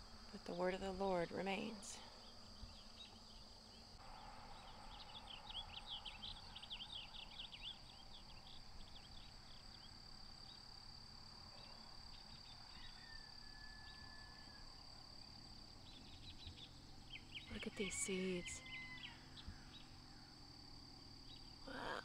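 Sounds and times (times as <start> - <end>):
insects trilling: 0.0 - 22.0
birds chirping: 1.1 - 10.6, 15.8 - 20.0.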